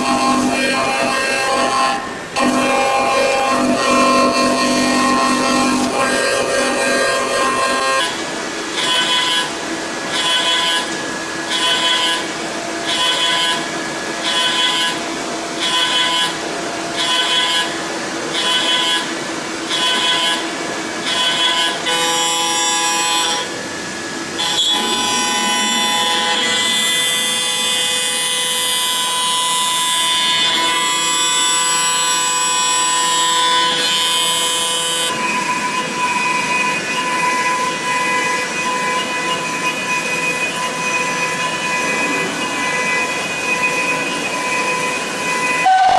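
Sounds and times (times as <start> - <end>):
milling machine cutting metal: 0.0 - 45.9
endmill steady whine: 23.0 - 28.0, 34.4 - 45.9.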